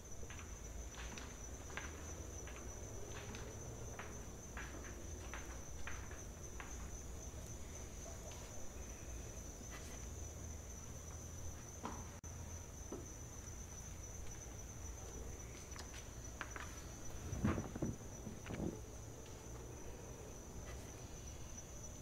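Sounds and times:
crickets chirping: 0.0s - 22.0s.

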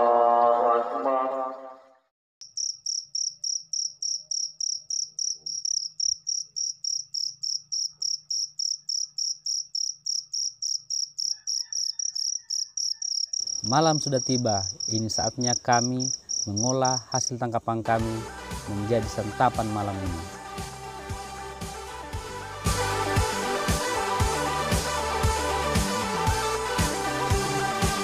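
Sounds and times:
cricket chirping: 2.4s - 17.5s.

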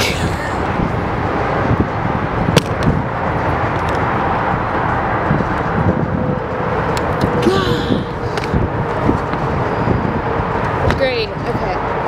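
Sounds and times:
outdoor rumble and hiss: 0.0s - 12.0s.

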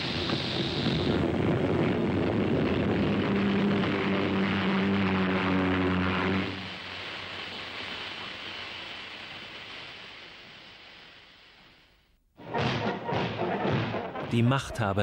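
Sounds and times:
faint hiss: 3.0s - 12.4s.

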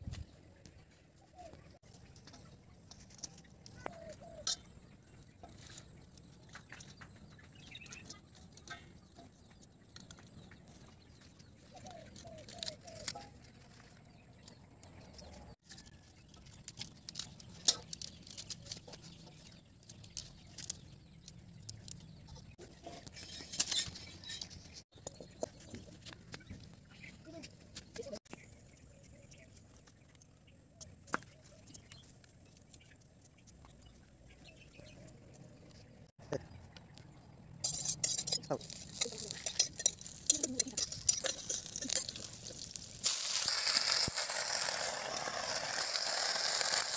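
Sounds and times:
bird calls: 1.2s - 15.5s.

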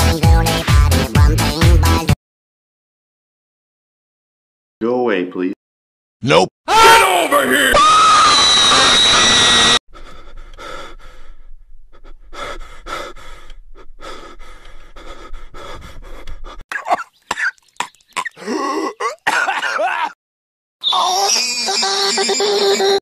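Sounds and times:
person coughing and panting: 16.7s - 17.6s, 18.2s - 20.2s.

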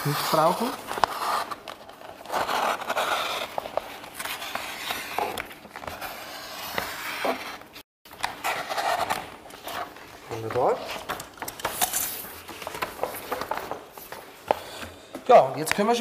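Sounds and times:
vinyl film rustling and crinkling: 0.0s - 6.0s, 8.1s - 14.5s.

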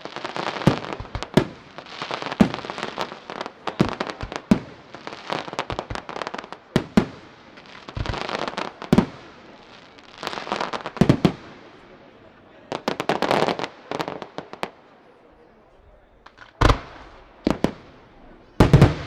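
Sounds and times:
firework bangs: 0.0s - 11.8s, 16.3s - 19.0s
firework crackling: 0.0s - 12.0s, 16.3s - 19.0s.

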